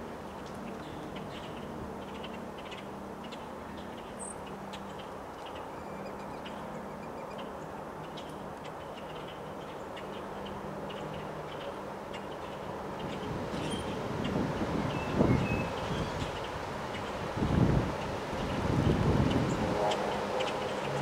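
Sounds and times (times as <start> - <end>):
strong wind through trees: 0.0 - 21.0.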